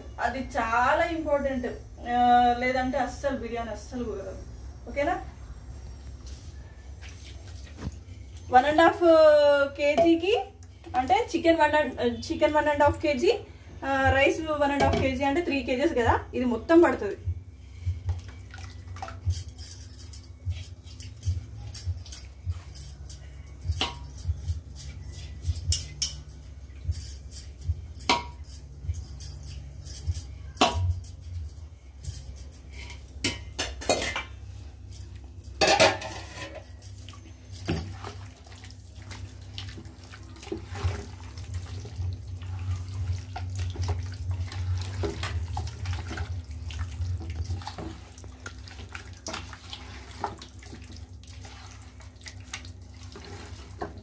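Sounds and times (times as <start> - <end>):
metal clinks against pot: 19.2 - 38.1
wet squelching of marinade: 37.9 - 54.0.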